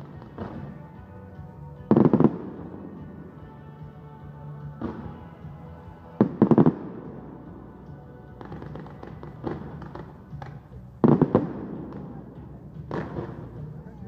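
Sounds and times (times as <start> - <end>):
scattered firework pops: 0.0 - 0.8, 8.4 - 12.2, 12.8 - 13.6
fireworks banging: 0.0 - 1.2, 1.8 - 3.9, 4.6 - 13.9.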